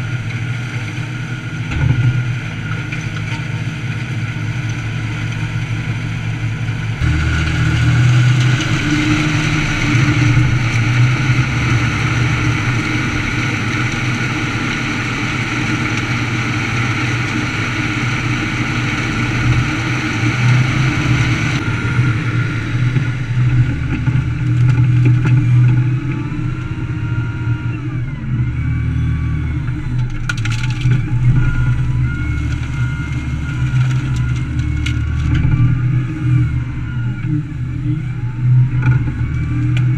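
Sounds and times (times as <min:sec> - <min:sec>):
diesel engine running: 0:00.0 - 0:39.9
thin whine: 0:00.0 - 0:39.9
grinder chewing wood: 0:07.0 - 0:21.6, 0:23.4 - 0:37.3.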